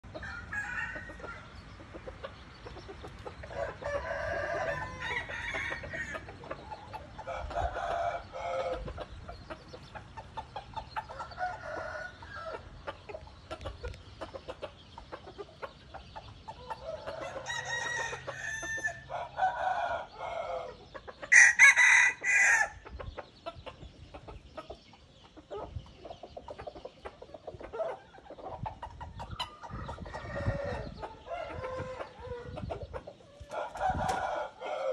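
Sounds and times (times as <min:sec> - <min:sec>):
roosters crowing: 0:00.0 - 0:01.6, 0:03.3 - 0:09.0, 0:11.0 - 0:12.8, 0:16.6 - 0:22.8, 0:29.4 - 0:34.9
chickens clucking: 0:00.0 - 0:34.9.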